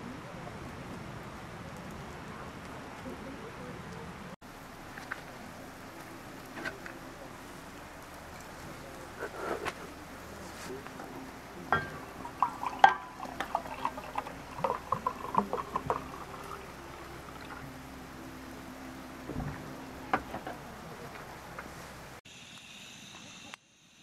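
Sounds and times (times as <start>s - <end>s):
sparkling water glugging into mug: 11.6s - 17.7s.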